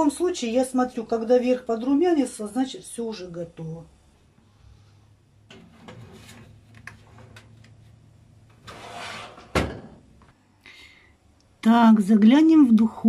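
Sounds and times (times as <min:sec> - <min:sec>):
oven door shutting: 0:08.6 - 0:10.0
pan sliding onto oven rack: 0:08.6 - 0:10.0.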